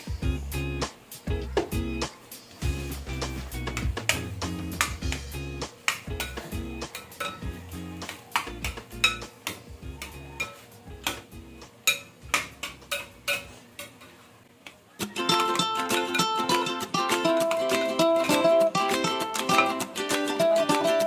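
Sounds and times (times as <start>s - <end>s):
quiet background music: 0.0s - 21.0s
plucked-string music: 2.6s - 11.6s, 15.0s - 21.0s.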